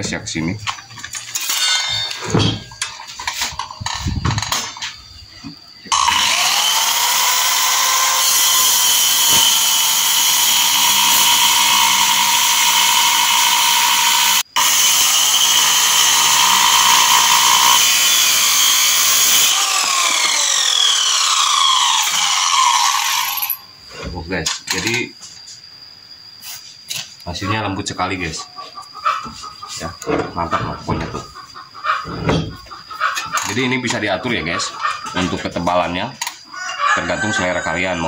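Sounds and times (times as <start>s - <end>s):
circular saw cutting wood: 5.9s - 23.6s.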